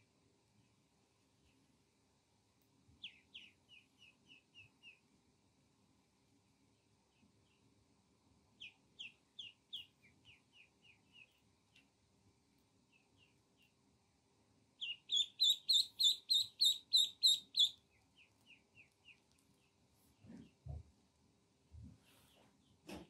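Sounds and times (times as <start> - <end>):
duckling peeping: 3.0 - 5.0, 8.6 - 11.5, 14.8 - 19.8.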